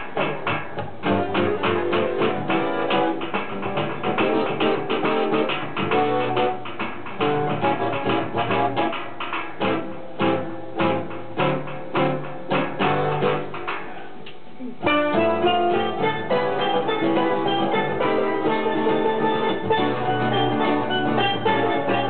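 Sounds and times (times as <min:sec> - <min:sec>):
acoustic guitar: 0:00.0 - 0:22.0
accordion: 0:14.9 - 0:22.0.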